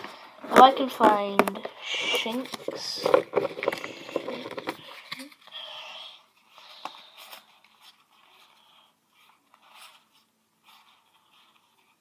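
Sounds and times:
trading cards rustling and tapping: 0:00.0 - 0:05.5.

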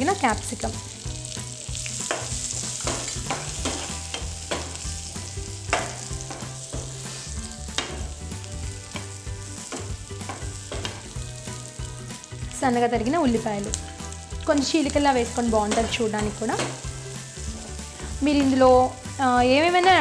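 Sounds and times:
capsicum sizzling in pan: 0:00.0 - 0:20.0
spatula scraping and tapping pan: 0:02.0 - 0:04.9, 0:05.6 - 0:08.1, 0:08.9 - 0:11.2, 0:15.6 - 0:18.6.

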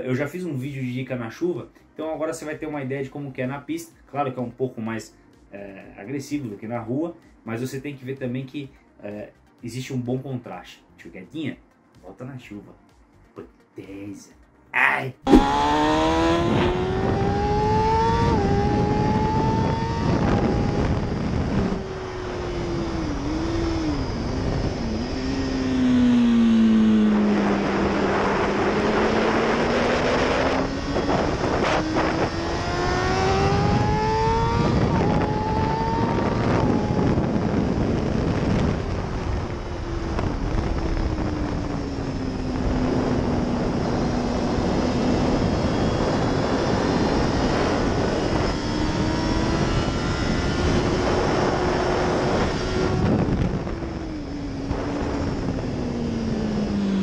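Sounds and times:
motorcycle engine revving: 0:15.2 - 0:57.0
wind rushing over microphone: 0:15.3 - 0:57.0.

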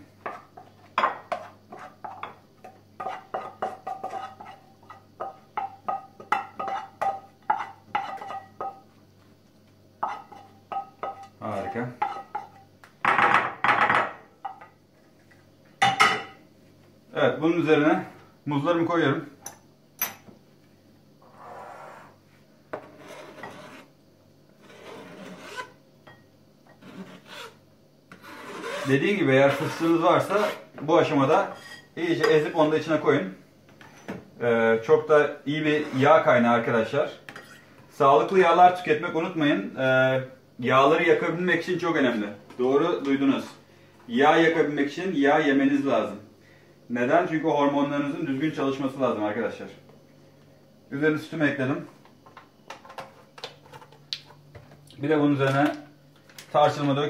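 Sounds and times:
spatula knocking in frying pan: 0:00.2 - 0:04.2, 0:04.8 - 0:08.8
knife scraping plastic cutting board: 0:22.8 - 0:23.9, 0:24.6 - 0:25.7, 0:26.8 - 0:30.6.

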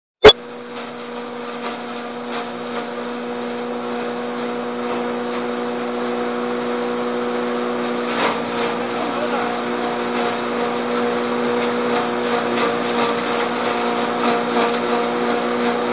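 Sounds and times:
hammer mill humming: 0:00.4 - 0:15.9.

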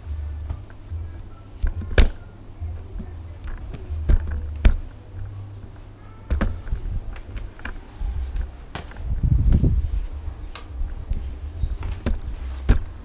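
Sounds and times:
mop handling rumble: 0:00.0 - 0:13.0
mop clicks and knocks: 0:11.8 - 0:13.0.

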